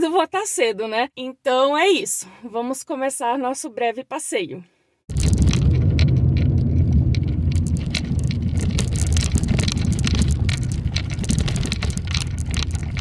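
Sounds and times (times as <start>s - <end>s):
car engine and road noise: 5.1s - 13.0s
small clicks and rattles: 5.1s - 13.0s.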